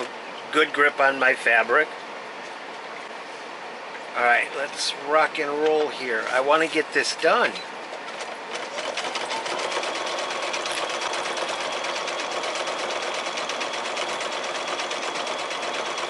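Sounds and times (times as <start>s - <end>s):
sewing machine stitching: 8.1s - 16.0s.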